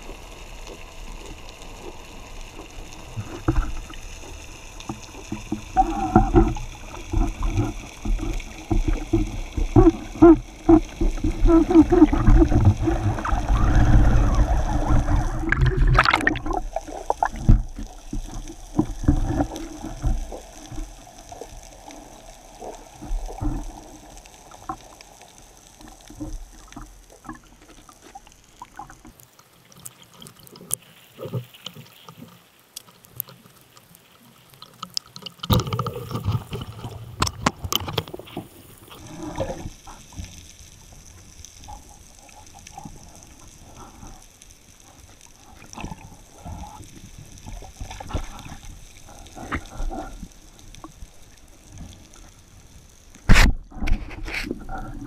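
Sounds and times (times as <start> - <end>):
underwater rushing and bubbling: 0.0 - 55.0
small clicks and knocks: 24.6 - 39.0.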